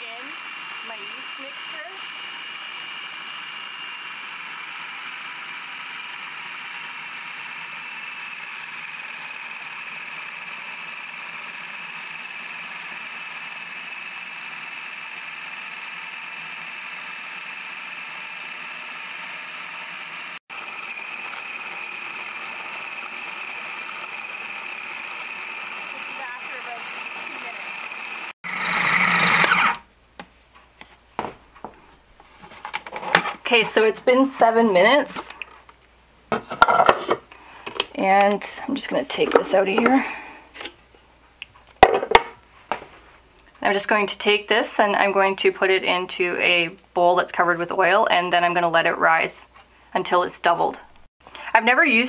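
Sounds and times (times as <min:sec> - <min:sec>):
food processor motor kneading dough: 0:00.0 - 0:29.9, 0:32.4 - 0:35.7.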